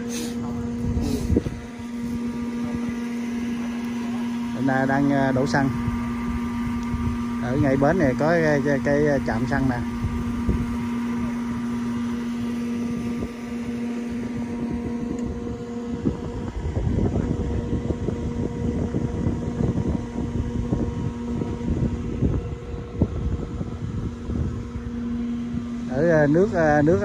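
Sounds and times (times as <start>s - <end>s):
electric fuel pump humming: 0.0s - 27.0s
wind gusts on microphone: 0.3s - 3.2s, 9.4s - 27.0s.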